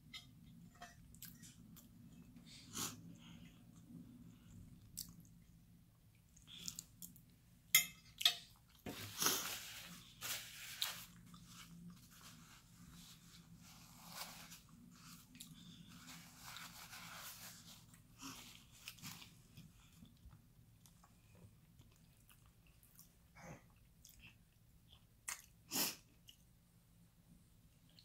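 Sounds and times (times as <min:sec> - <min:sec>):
paper napkin crinkling: 0:09.0 - 0:19.4
chewing: 0:17.9 - 0:26.5.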